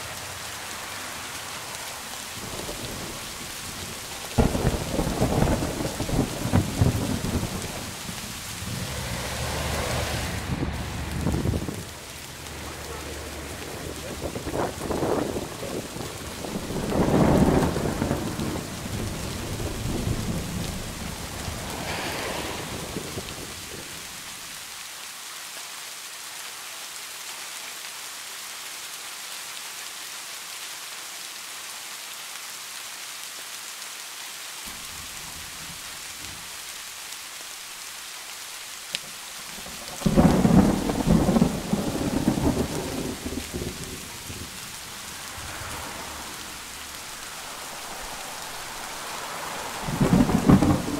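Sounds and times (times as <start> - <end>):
steady rain: 0.0 - 50.9
rolling low thunder rumble: 2.4 - 24.0, 39.6 - 50.9.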